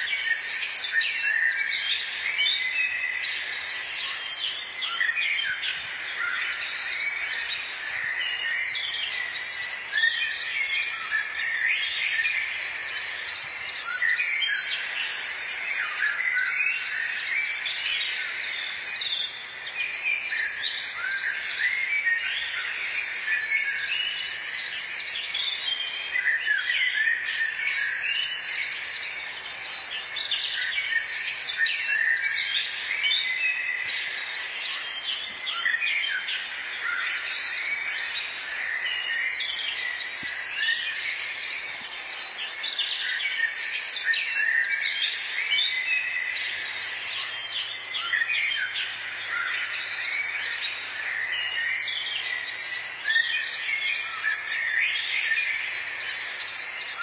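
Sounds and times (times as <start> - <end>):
songbirds singing and chirping: 0.0 - 57.0.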